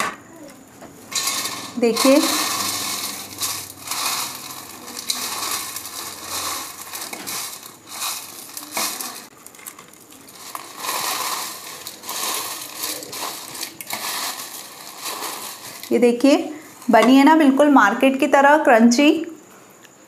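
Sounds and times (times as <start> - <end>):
crisp snack crunching on steel plate: 1.1 - 17.0.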